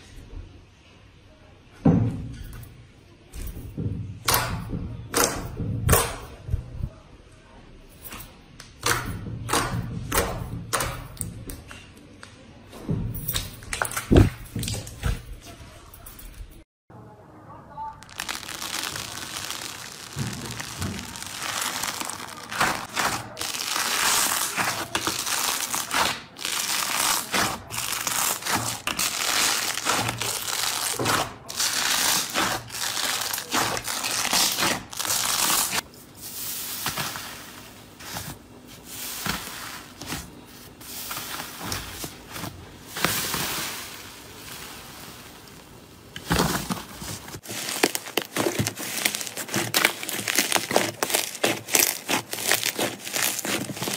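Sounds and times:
hands squeezing fluffy slime: 18.0s - 35.8s, 47.4s - 53.9s
hands squishing foamy slime: 18.0s - 35.8s, 47.4s - 53.9s.

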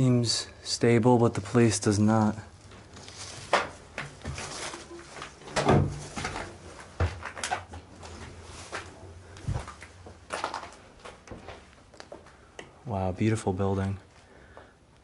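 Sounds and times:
footsteps crunching on debris: 2.6s - 12.4s.

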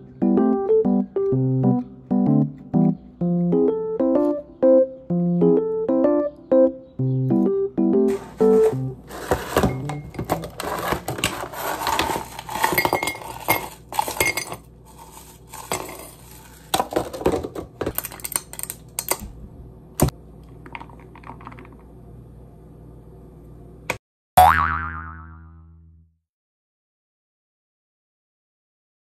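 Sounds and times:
ice cubes clattering into glass: 8.6s - 18.8s
cartoon boing sound effect: 24.4s - 26.0s.

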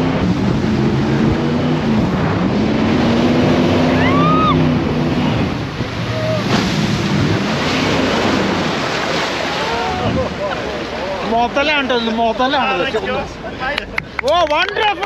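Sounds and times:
wind on microphone: 0.0s - 8.9s, 9.8s - 10.5s
boat engine running: 0.0s - 15.0s
water rushing: 0.0s - 15.0s
high rising and falling cry: 3.8s - 5.0s.

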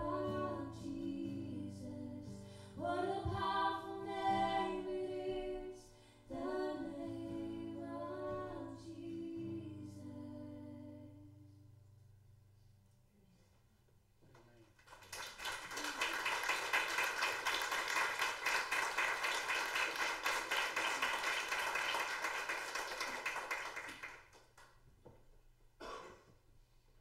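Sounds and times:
audience applauding: 14.8s - 24.8s.

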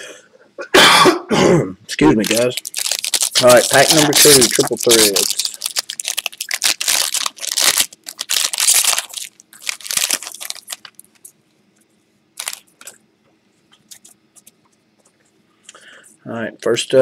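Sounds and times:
foil wrapper tearing and crinkling: 2.1s - 11.3s, 12.4s - 12.9s
cards rustling: 2.2s - 11.3s, 12.4s - 13.0s.

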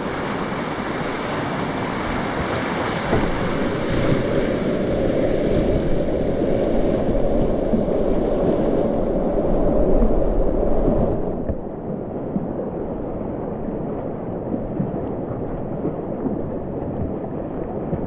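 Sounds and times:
whitewater rapids rushing: 0.0s - 11.5s.

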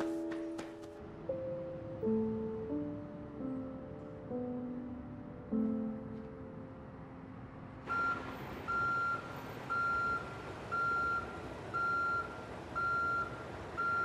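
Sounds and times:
soft music: 0.0s - 8.8s
vehicle reversing alarm beeping: 7.9s - 14.0s.

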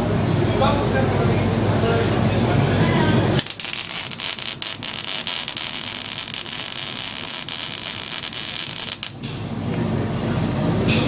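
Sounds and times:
welding arc crackling hiss: 3.4s - 9.2s.

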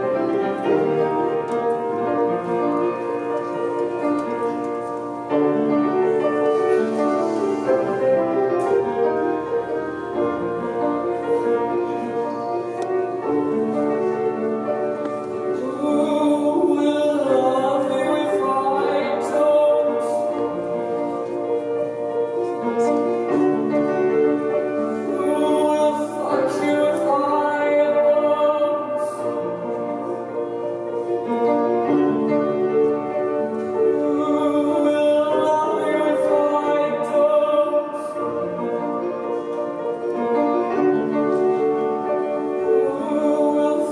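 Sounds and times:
piano chords: 0.0s - 43.9s
woman singing: 15.5s - 20.5s, 24.9s - 29.4s, 33.9s - 38.7s, 42.7s - 43.9s.

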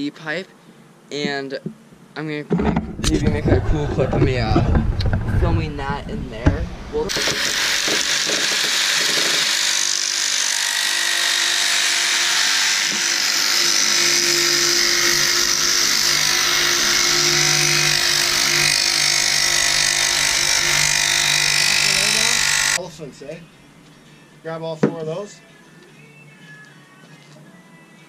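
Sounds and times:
jigsaw sawing plastic pipe: 7.1s - 22.8s.

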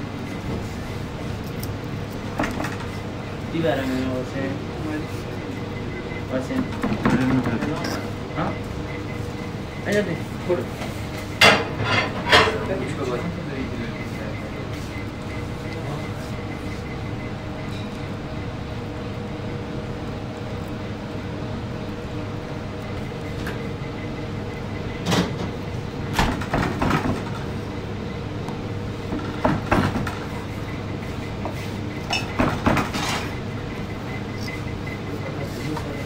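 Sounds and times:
steady background hum: 0.0s - 36.0s.

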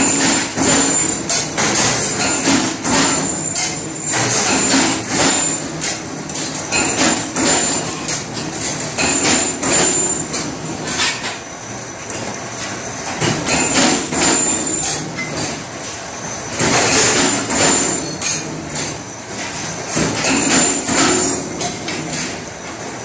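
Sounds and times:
sharp metallic knocks: 0.0s - 11.3s, 13.2s - 15.3s, 16.6s - 19.0s, 20.0s - 22.4s
tube bending machine clanking: 0.0s - 11.4s, 12.1s - 23.0s.

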